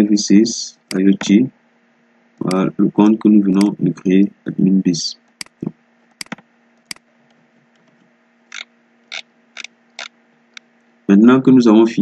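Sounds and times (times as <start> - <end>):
computer mouse clicking: 5.3 - 7.0, 7.8 - 10.1.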